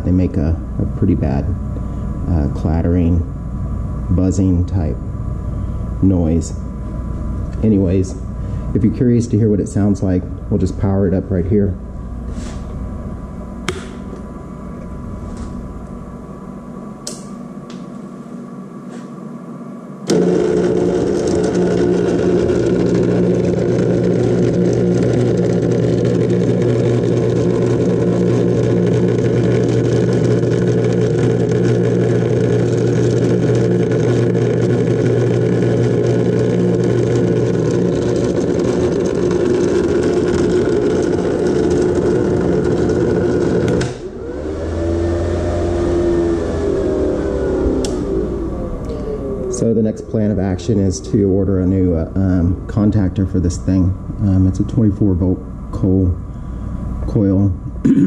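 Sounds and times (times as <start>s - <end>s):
loud clattering buzz: 20.0s - 54.7s
clicks: 47.8s - 48.1s.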